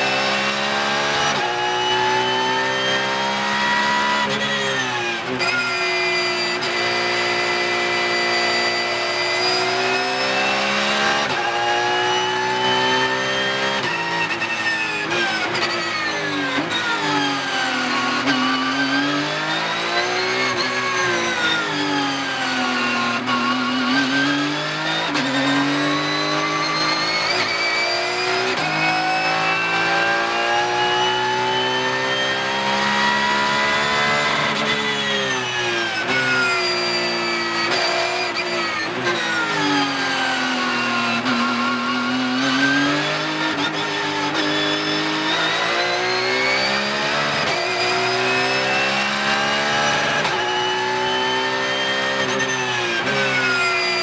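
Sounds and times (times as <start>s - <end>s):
race car engine under load: 0.0s - 54.0s.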